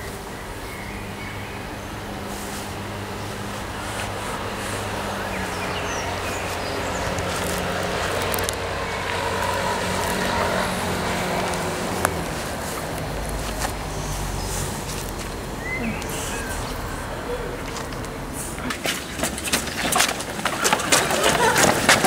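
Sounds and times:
traffic engine hum and rumble: 0.0s - 22.0s.

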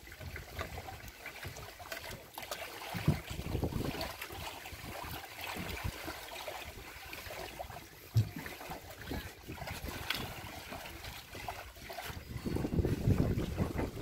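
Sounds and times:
sea water lapping: 0.0s - 14.0s
wind on microphone: 3.0s - 4.2s, 9.0s - 14.0s.

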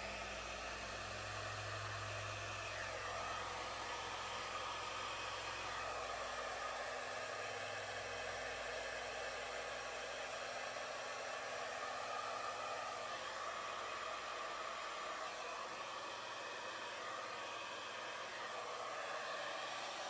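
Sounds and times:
hair dryer running: 0.0s - 20.0s.

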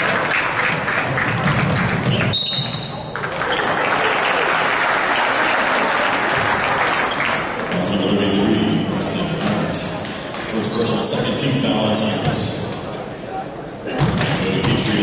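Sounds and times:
crowd voices: 0.0s - 15.0s
basketball bouncing: 1.2s - 2.8s.

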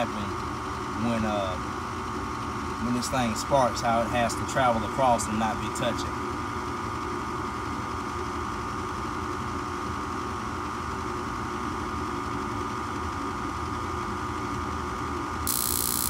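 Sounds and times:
furnace motor humming: 0.0s - 14.5s, 15.2s - 16.0s.

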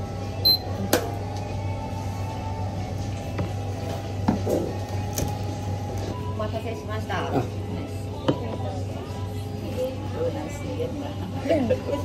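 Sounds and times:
short high electronic beep: 0.4s - 0.7s.

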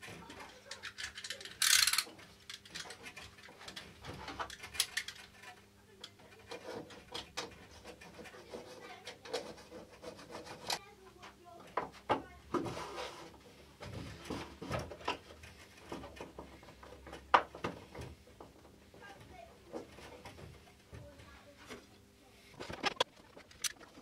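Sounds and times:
rubbing: 6.2s - 10.8s, 12.5s - 16.8s.

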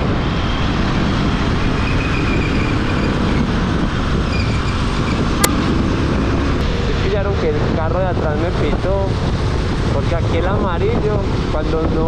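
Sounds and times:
motorcycle engine: 0.0s - 6.9s
wind on microphone: 0.0s - 12.0s.

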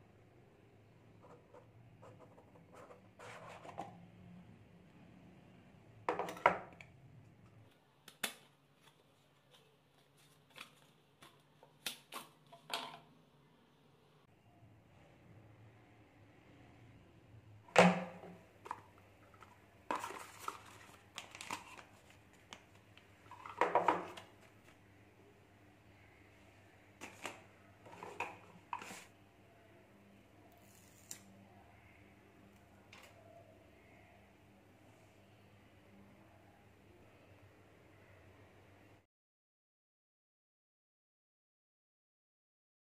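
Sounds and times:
clicks and rustles of handling cable: 6.1s - 13.1s, 18.6s - 24.8s
clicks and scrapes of handling: 27.0s - 29.1s.

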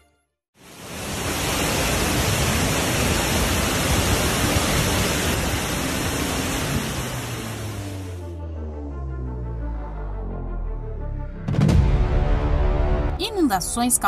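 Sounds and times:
floodwater pouring over rocks: 0.9s - 7.8s.

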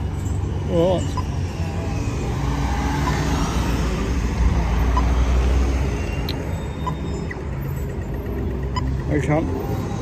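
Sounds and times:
heavy vehicle engine rumble: 3.6s - 10.0s.

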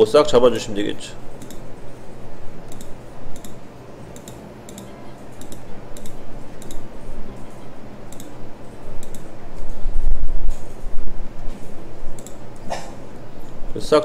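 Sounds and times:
steady low hum: 0.0s - 14.0s
mouse button clicking: 2.7s - 6.9s.

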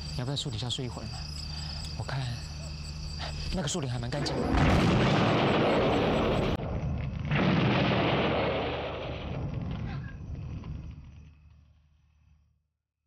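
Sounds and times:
explosions: 4.2s - 11.1s.

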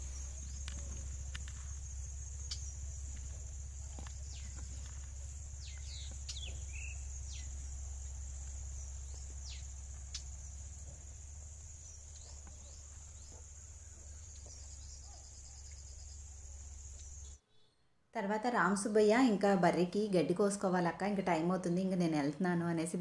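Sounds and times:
high-pitched insect drone: 0.0s - 17.4s
low steady rumble: 0.0s - 17.4s.

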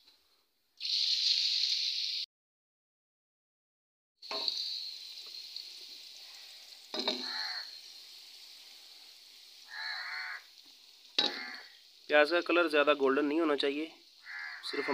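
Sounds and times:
onions sizzling in hot fat: 0.8s - 2.3s, 4.2s - 14.9s
wooden spatula clattering and stirring: 6.9s - 7.4s.

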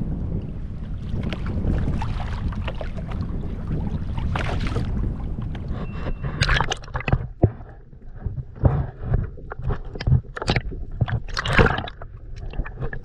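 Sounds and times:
wind rumble on microphone: 0.0s - 13.0s
water sloshing against kayak hull: 0.4s - 13.0s
sharp clicks and knocks: 6.3s - 12.1s.

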